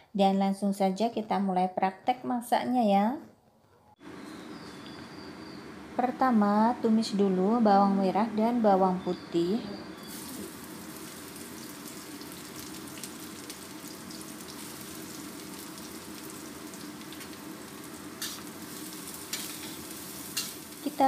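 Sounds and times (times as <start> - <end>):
garlic sizzling in hot oil: 10.0 - 21.0.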